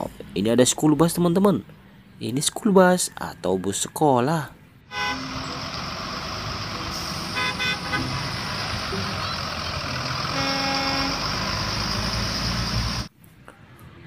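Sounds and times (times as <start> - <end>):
vehicle running noise: 0.0 - 14.0
cartoon horn beeps: 4.9 - 5.7, 6.8 - 11.3.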